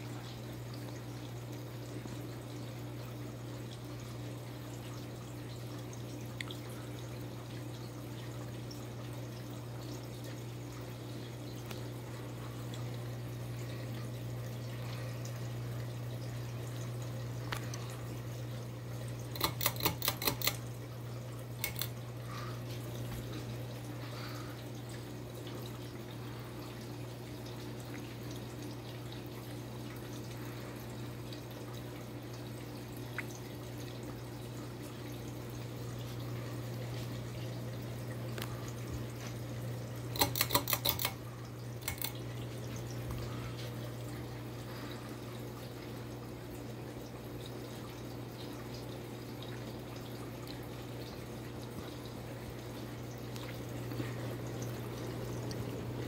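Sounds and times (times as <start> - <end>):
ceiling fan humming: 0.0 - 56.0
pull chain clicking: 19.3 - 20.6, 21.6 - 21.9, 40.2 - 41.2, 41.8 - 42.2.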